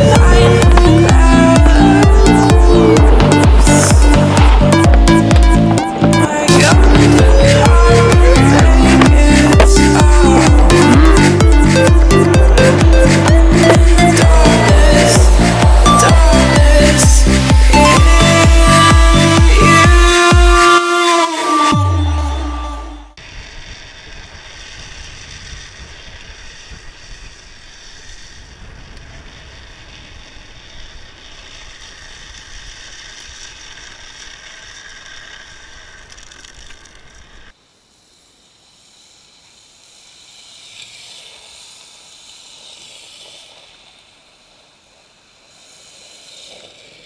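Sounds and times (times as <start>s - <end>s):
quieter rolling sound: 0.0s - 47.0s
trike wheels rattling on asphalt: 23.6s - 47.0s.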